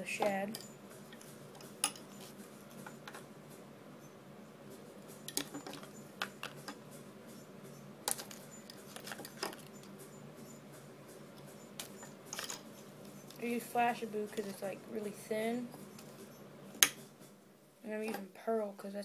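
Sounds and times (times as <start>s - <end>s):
faint low hum: 0.0s - 19.0s
tools clicking and tapping: 0.2s - 3.2s, 5.0s - 13.6s, 14.2s - 14.7s, 15.8s - 17.1s.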